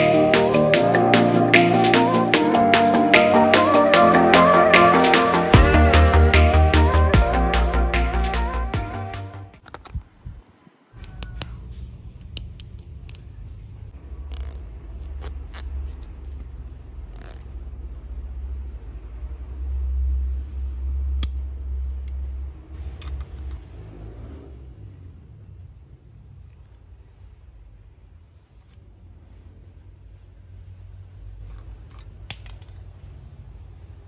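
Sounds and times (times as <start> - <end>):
hair being combed: 0.0 - 9.2, 33.0 - 34.0.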